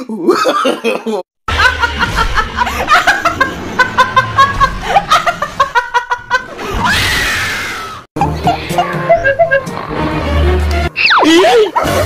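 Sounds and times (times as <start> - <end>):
woman laughing: 0.3 - 6.7, 8.2 - 9.8, 11.2 - 12.0
woman squealing: 11.0 - 12.0.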